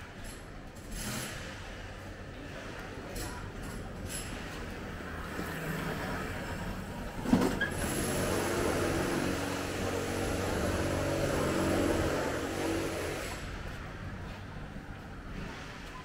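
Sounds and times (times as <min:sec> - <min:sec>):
road vehicle passing: 0:04.9 - 0:13.3.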